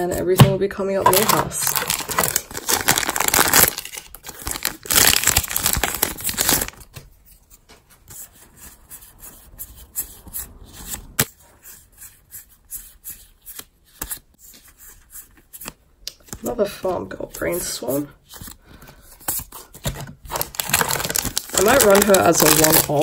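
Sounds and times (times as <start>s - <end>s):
foil wrapper tearing and crinkling: 1.2s - 6.9s, 20.3s - 23.0s.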